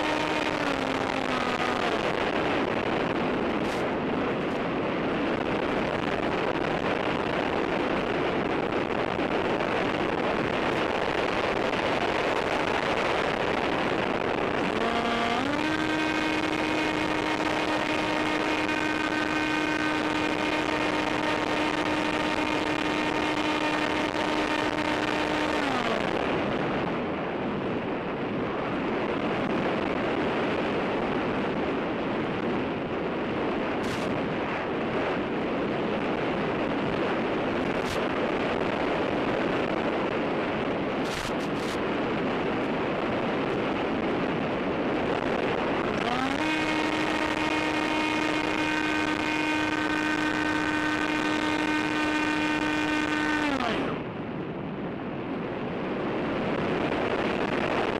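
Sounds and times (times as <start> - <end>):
wind rushing noise: 0.0 - 57.9
electric motor whine: 14.6 - 26.2, 45.8 - 54.0.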